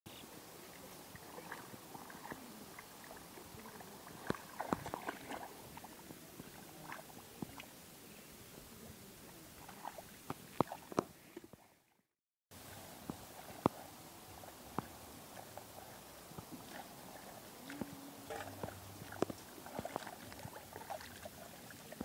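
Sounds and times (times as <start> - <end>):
steady outdoor hiss: 0.1 - 11.7, 12.5 - 22.0
hands splashing in muddy water: 4.0 - 5.9, 17.7 - 22.0.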